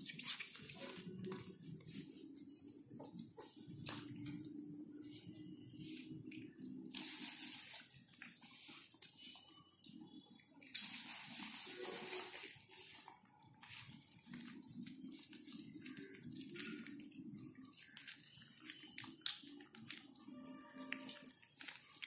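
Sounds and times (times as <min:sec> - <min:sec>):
dogs chewing and licking: 0:00.1 - 0:06.9, 0:12.6 - 0:22.0.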